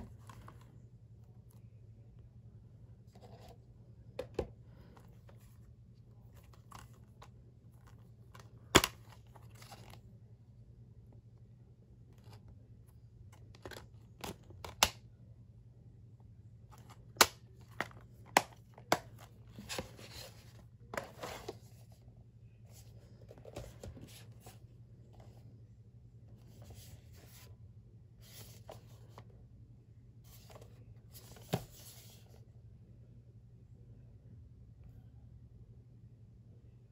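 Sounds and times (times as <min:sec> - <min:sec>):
steady low hum: 0:00.0 - 0:36.9
plastic case clicks and snaps: 0:13.6 - 0:15.0
cardboard slipcover rustling: 0:16.8 - 0:22.0, 0:22.7 - 0:25.4, 0:30.3 - 0:32.3.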